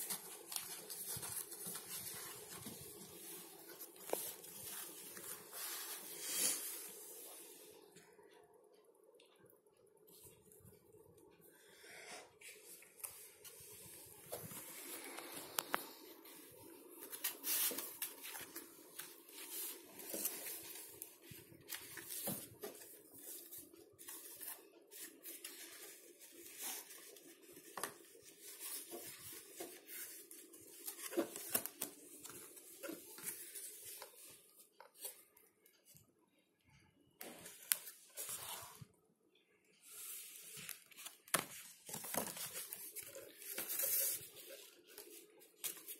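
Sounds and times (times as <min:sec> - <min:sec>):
paper and cardboard rustling: 0:00.0 - 0:07.6, 0:12.5 - 0:35.4, 0:39.8 - 0:45.9.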